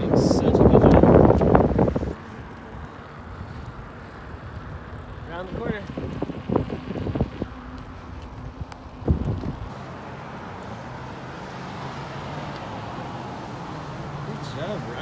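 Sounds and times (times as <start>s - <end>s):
wind rumbling on microphone: 0.0s - 14.2s
rolling on paved path: 0.0s - 15.0s.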